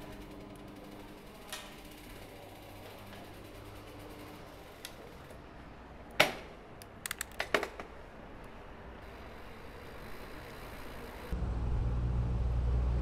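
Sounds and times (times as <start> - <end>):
clicks and rattles of bike: 6.1 - 8.1
low steady rumble: 11.3 - 13.0.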